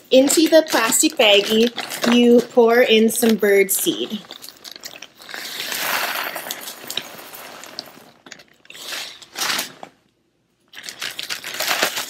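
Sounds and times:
plastic bags crinkling: 0.0 - 10.0, 10.7 - 12.0
seeds pouring into plastic bag: 5.2 - 8.2.

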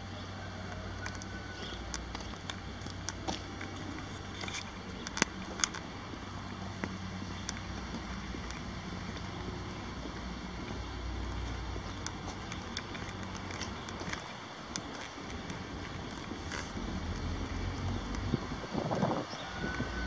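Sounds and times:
diesel truck engine idling: 0.0 - 19.9
sharp clicks: 1.9 - 5.9, 11.9 - 16.8.

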